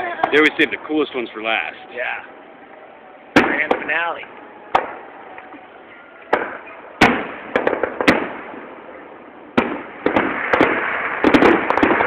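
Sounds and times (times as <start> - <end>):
firework crackle: 3.3 - 5.5, 6.2 - 12.0
firework shells bursting: 3.3 - 5.5, 6.2 - 8.8, 9.5 - 12.0.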